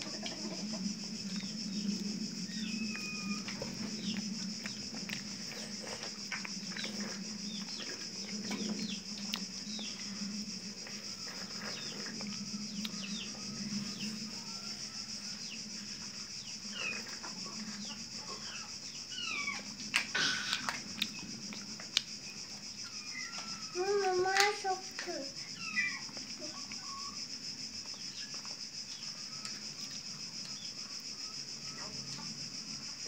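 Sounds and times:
birds chirping: 0:00.0 - 0:15.7
steady low hum: 0:00.0 - 0:23.8.

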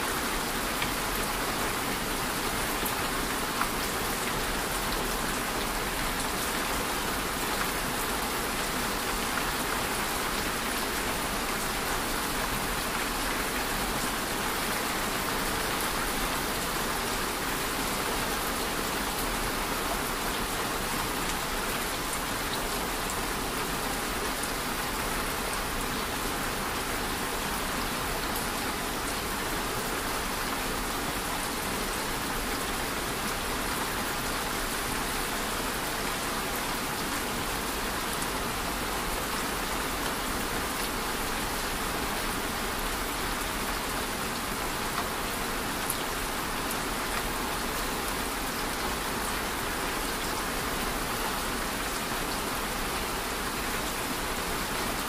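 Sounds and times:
steady rain hiss: 0:00.0 - 0:55.0.

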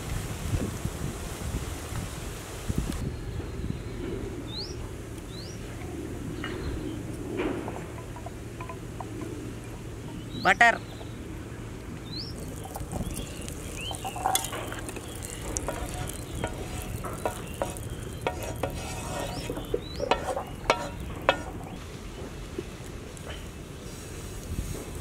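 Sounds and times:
butter sizzling on a griddle: 0:12.0 - 0:21.8
wooden spatula scraping a pan: 0:12.4 - 0:21.8.

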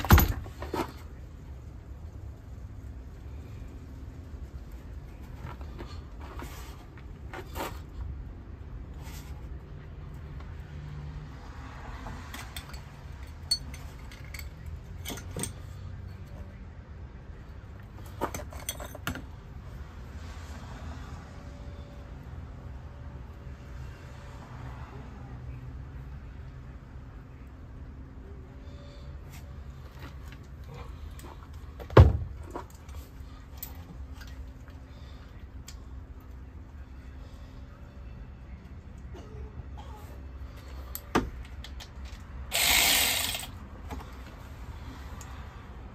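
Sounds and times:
hand tool clunking on engine: 0:00.0 - 0:00.9
faint clicks and rattles of tools: 0:12.0 - 0:16.4, 0:40.6 - 0:44.4
hand tools clinking on metal: 0:12.3 - 0:15.7, 0:18.3 - 0:19.2.

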